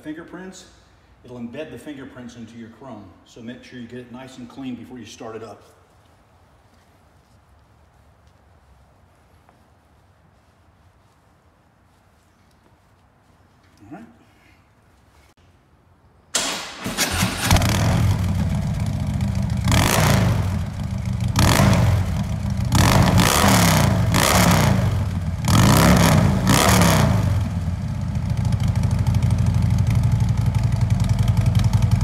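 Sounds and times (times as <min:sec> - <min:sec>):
motorcycle engine starting: 0:16.3 - 0:32.0
engine revving: 0:16.8 - 0:30.0
engine idling: 0:16.9 - 0:23.0, 0:27.4 - 0:32.0.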